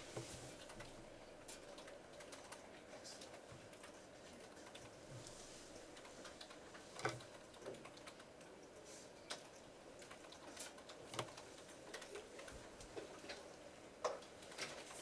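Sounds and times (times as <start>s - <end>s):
computer keys typing: 0.6s - 5.0s, 5.9s - 12.5s.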